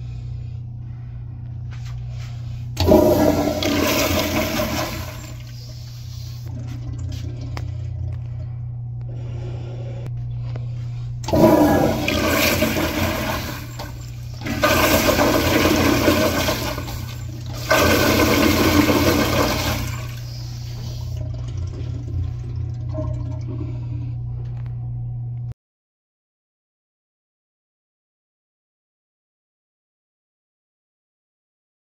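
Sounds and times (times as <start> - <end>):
toilet flushing: 2.8 - 8.6, 11.2 - 24.2
water refill flow: 2.8 - 8.6, 11.2 - 24.2.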